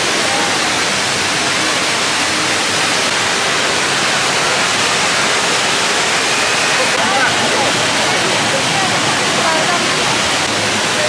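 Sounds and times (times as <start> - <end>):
indoor waterfall rushing: 0.0 - 11.0.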